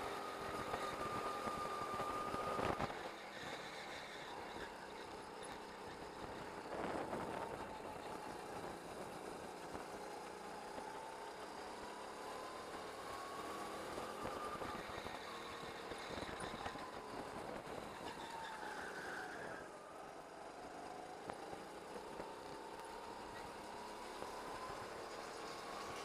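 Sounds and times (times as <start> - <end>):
go-kart engine revving: 0.0 - 26.0.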